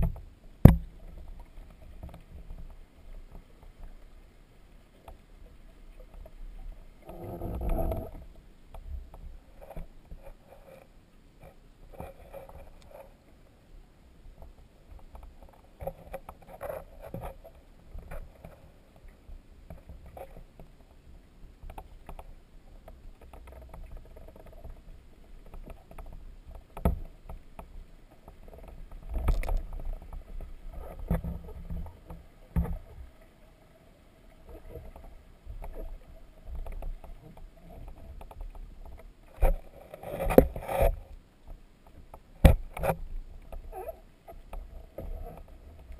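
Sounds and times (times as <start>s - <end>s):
muffled underwater knocks: 0.0s - 1.0s
faint steady hum: 0.0s - 45.9s
low watery rumble: 0.0s - 45.9s.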